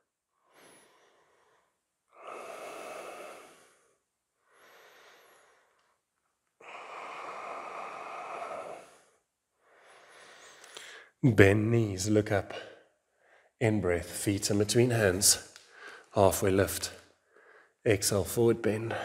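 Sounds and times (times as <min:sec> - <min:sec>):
slow deep breathing: 0:00.3 - 0:11.2, 0:12.6 - 0:13.6, 0:15.5 - 0:16.2, 0:17.0 - 0:17.8.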